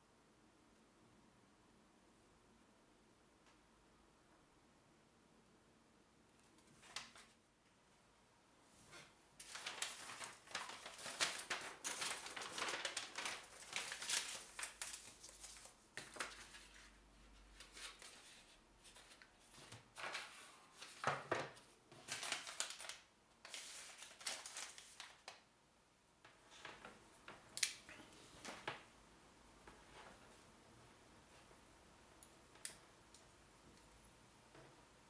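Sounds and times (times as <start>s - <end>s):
paper rustling and crinkling: 6.5s - 7.4s, 8.8s - 25.5s, 26.5s - 28.9s.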